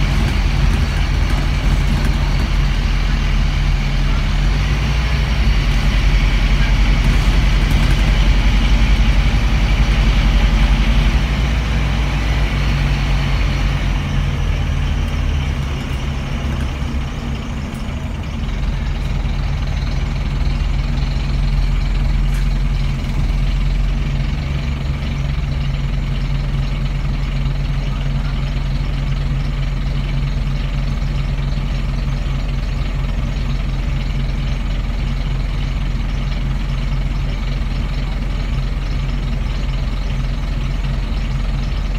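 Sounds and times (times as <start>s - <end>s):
cooling fan roaring: 0.0s - 19.6s
bus engine running: 0.0s - 41.9s.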